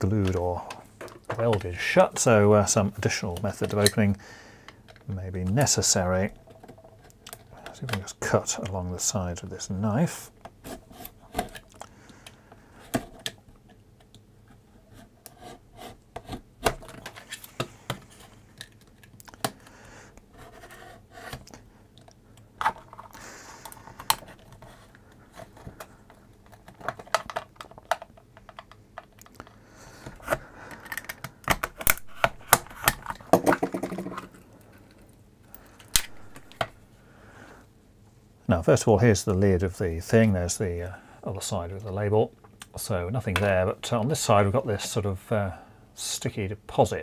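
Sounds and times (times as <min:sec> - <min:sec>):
plastic clicks and cracks: 0:06.4 - 0:08.8, 0:16.2 - 0:20.3, 0:21.3 - 0:24.7, 0:25.4 - 0:36.8.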